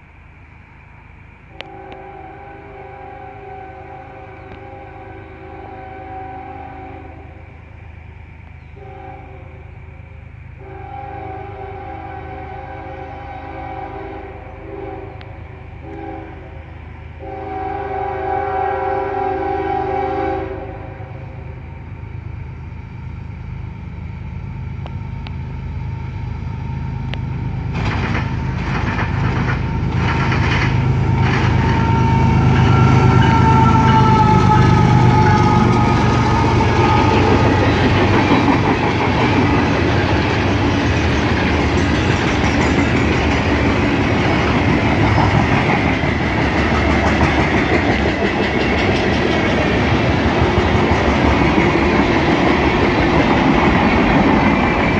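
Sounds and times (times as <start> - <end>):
locomotive engine rumble: 0.0 - 54.9
tank cars clickety-clack: 27.7 - 31.9, 37.7 - 54.9.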